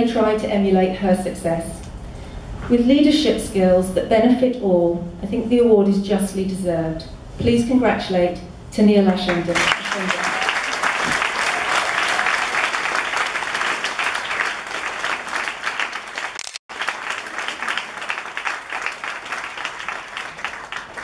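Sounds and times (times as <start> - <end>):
audience applauding: 9.5 - 21.0.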